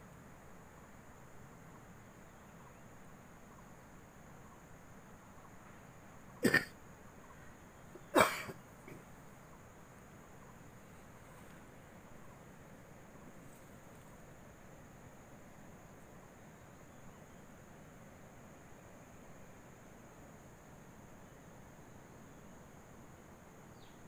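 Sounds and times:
faint steady hiss: 0:00.0 - 0:24.0
person coughing: 0:06.4 - 0:06.7, 0:08.1 - 0:09.0.

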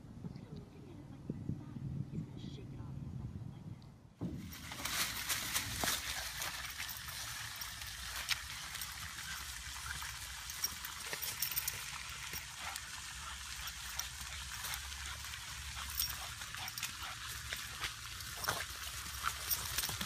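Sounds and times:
dog rustling through dry leaves: 0:04.4 - 0:20.0.

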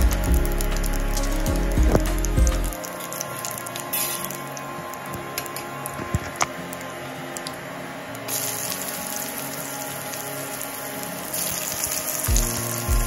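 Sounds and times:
background music: 0:00.0 - 0:13.0
oil sizzling in a frying pan: 0:08.3 - 0:13.0.

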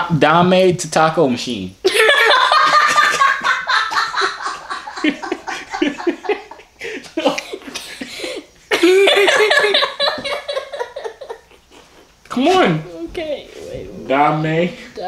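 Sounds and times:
people laughing hard: 0:01.9 - 0:12.2.

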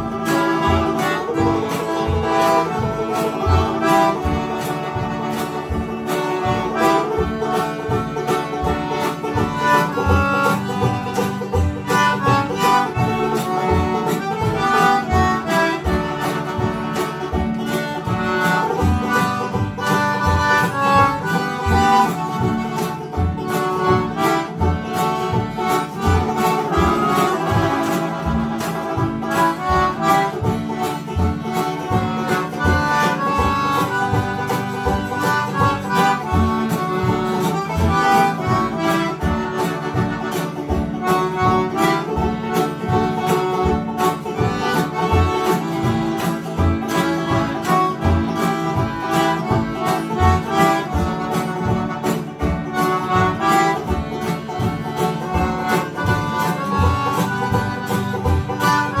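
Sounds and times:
concertina playing a tune: 0:00.0 - 0:59.0
low bass notes: 0:00.0 - 0:59.0
strummed acoustic guitars: 0:00.0 - 0:59.0.

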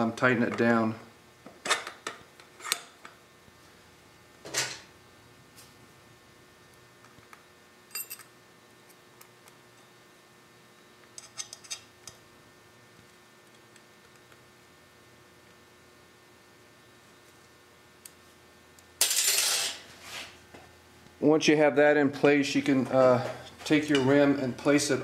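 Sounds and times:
metal clinks: 0:07.9 - 0:08.3.

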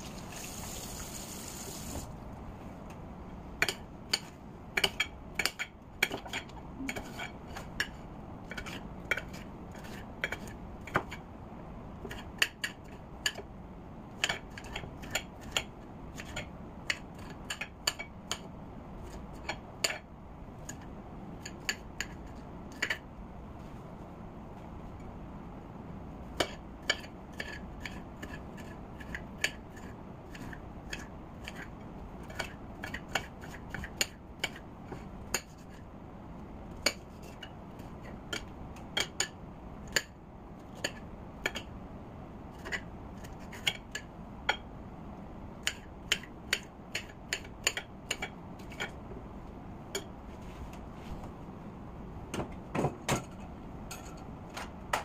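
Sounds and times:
knife chopping on a plate: 0:42.5 - 0:44.6.

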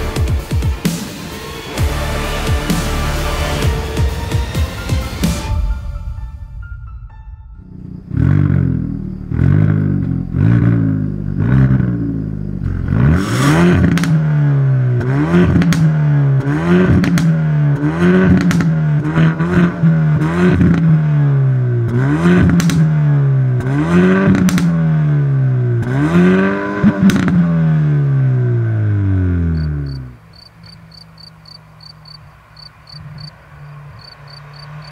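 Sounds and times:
car engine revving: 0:00.0 - 0:05.6, 0:07.6 - 0:34.9
exhaust pops and crackles: 0:12.7 - 0:14.4, 0:15.0 - 0:21.0, 0:21.8 - 0:23.0, 0:23.6 - 0:24.9, 0:26.8 - 0:27.6.

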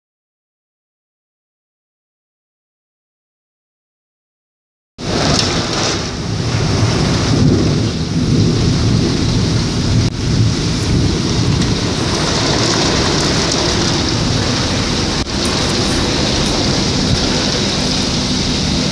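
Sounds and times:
deep low thunder rumble: 0:05.0 - 0:18.9
heavy rain pouring: 0:05.0 - 0:18.9.

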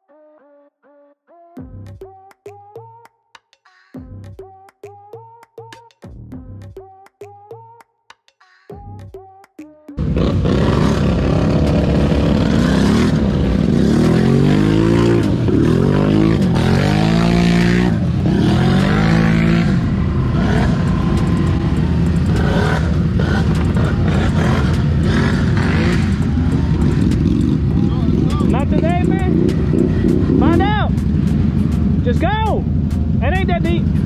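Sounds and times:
atv engine revving: 0:10.0 - 0:34.0.

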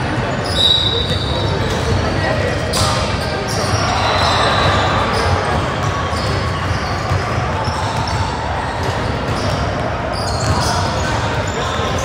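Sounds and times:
voices in background: 0:00.0 - 0:12.0
basketball bouncing on gym floor: 0:04.4 - 0:11.5.

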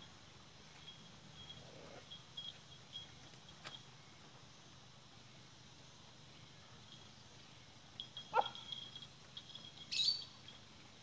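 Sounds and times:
pulsing insect-like chirping: 0:06.3 - 0:10.6.

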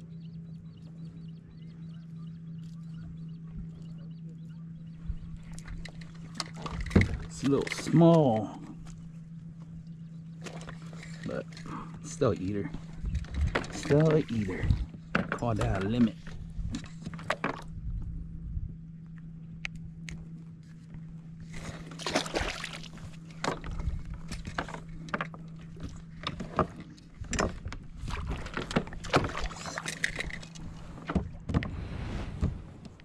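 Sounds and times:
steady low hum: 0:00.0 - 0:33.0
knocks and clatter on boat: 0:02.9 - 0:08.8, 0:10.3 - 0:18.1, 0:21.8 - 0:33.0
rushes of water: 0:21.5 - 0:24.4, 0:27.4 - 0:32.9.

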